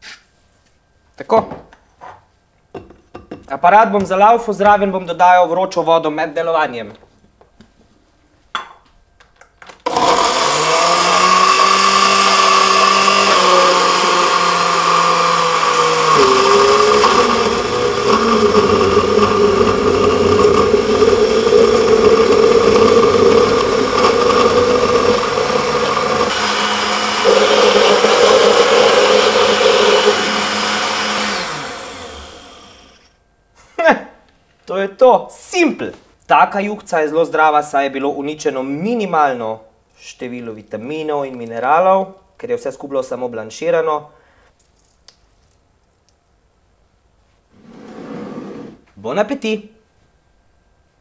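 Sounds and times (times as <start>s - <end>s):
blender motor running: 9.9s - 33.1s.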